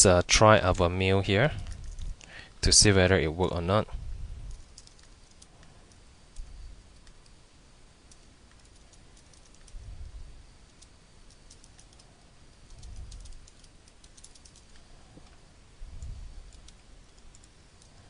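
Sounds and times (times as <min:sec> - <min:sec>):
computer keyboard typing: 0:04.5 - 0:07.3, 0:08.1 - 0:09.8, 0:10.7 - 0:14.8, 0:16.5 - 0:18.0.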